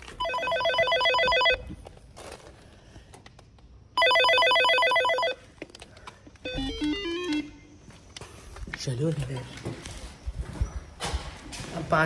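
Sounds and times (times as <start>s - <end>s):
intercom electronic call tone: 0.2s - 1.7s, 4.0s - 5.4s, 6.5s - 7.7s.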